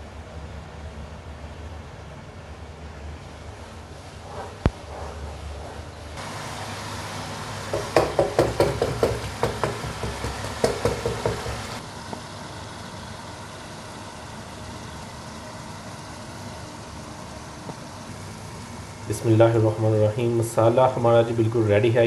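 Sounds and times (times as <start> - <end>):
masala frying hiss: 6.2 - 11.8.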